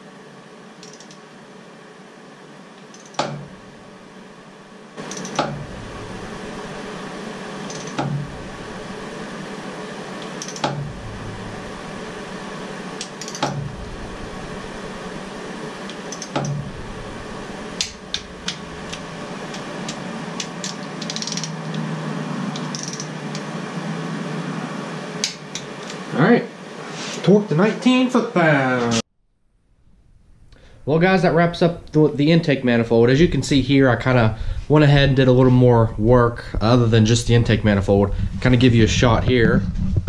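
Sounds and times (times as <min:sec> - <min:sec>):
steady hum: 0:00.0 - 0:40.0
torque wrench clicking: 0:00.8 - 0:01.2, 0:02.8 - 0:03.3, 0:05.1 - 0:05.5, 0:07.7 - 0:08.1, 0:10.2 - 0:10.8, 0:13.0 - 0:13.5, 0:15.9 - 0:16.6, 0:17.8 - 0:21.6, 0:22.6 - 0:23.5.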